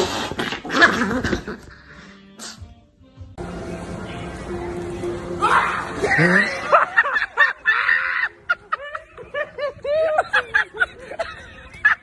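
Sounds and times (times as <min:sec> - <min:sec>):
hearty laughter: 0:06.1 - 0:12.0.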